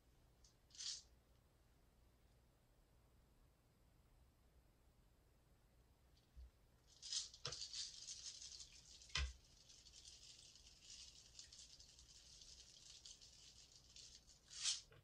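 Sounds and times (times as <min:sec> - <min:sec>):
beads pouring with tiny ticks: 0:06.9 - 0:14.9.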